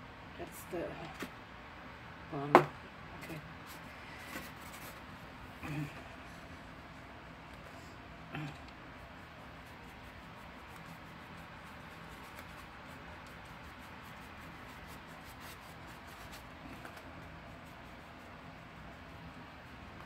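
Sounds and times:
paintbrush strokes: 8.8s - 20.0s.

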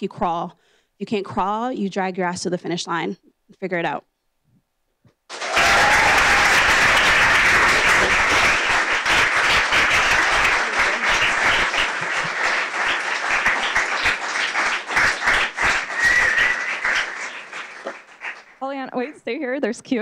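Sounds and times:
audience applauding: 5.3s - 18.6s.

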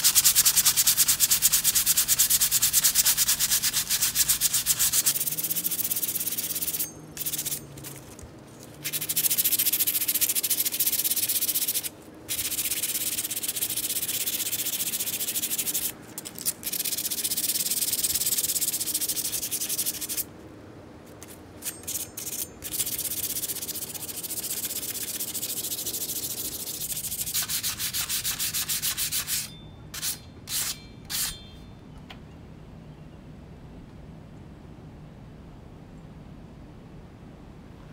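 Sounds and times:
rotary tool motor humming: 0.0s - 20.2s.

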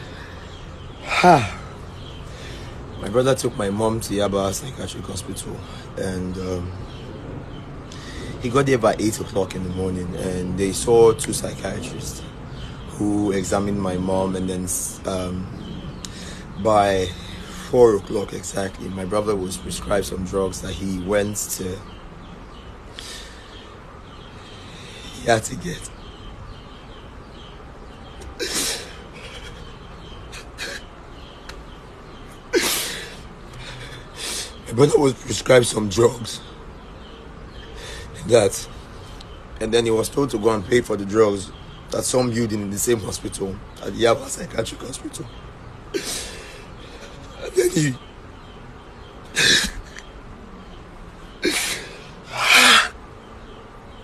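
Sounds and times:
man sobbing: 28.4s - 29.7s.

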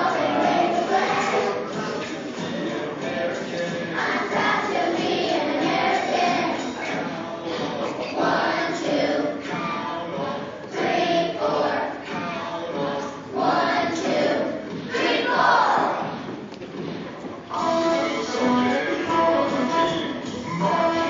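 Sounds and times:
children singing: 0.0s - 16.2s, 17.5s - 21.0s.

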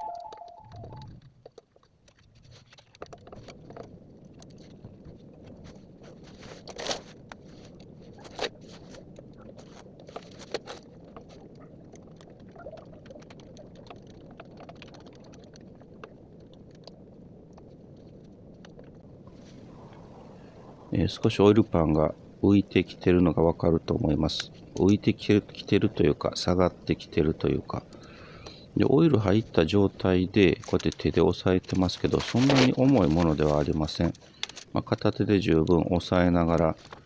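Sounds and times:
steady low hiss: 0.0s - 37.0s.

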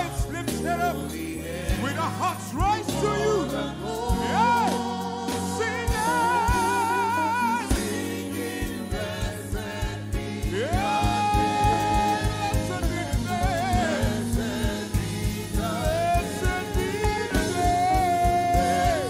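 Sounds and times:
gospel singing: 0.0s - 19.0s
live band playing: 0.0s - 19.0s
drums beating: 4.0s - 19.0s.

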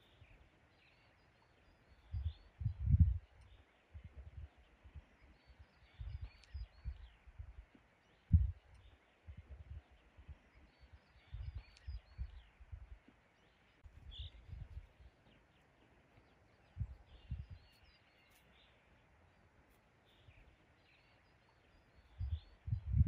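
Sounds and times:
small birds chirping: 0.0s - 23.0s
soft low bumps: 6.0s - 8.7s.

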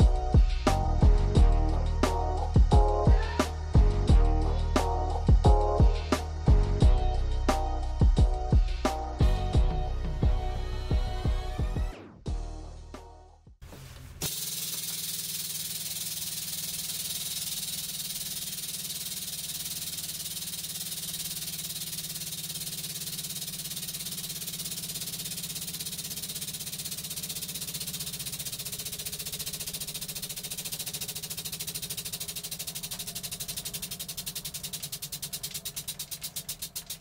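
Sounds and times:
bright hiss: 14.2s - 37.0s
hydraulic pump drone: 14.2s - 37.0s.

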